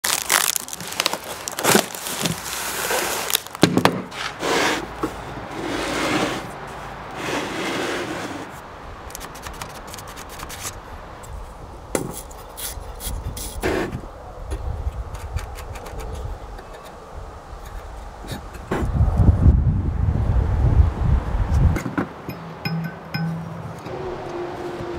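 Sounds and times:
cardboard and packing rustling: 0:00.0 - 0:05.2.

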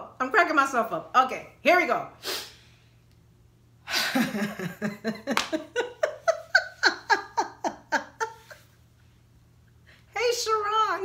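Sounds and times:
woman laughing: 0:03.9 - 0:08.8.

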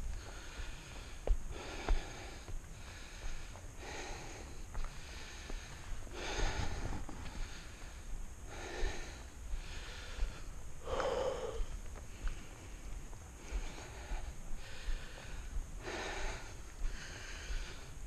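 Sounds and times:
man breathing heavily: 0:00.0 - 0:18.0
wind rumble on microphone: 0:06.0 - 0:07.5.

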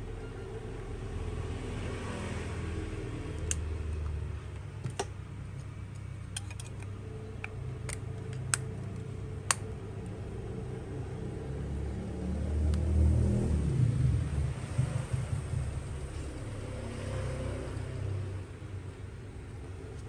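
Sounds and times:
steady low rumble: 0:03.4 - 0:16.7.

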